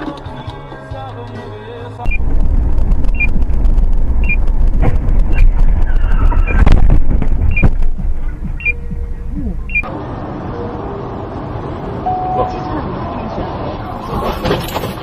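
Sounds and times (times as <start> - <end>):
road and vehicle rumble: 0.0 - 15.0
short high beep: 12.1 - 12.7.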